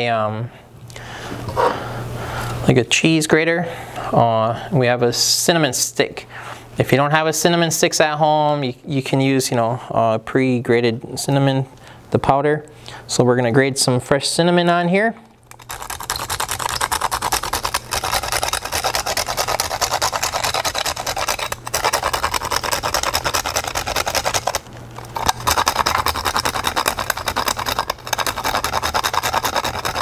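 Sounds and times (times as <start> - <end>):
cinnamon stick rasping on grater: 15.5 - 30.0.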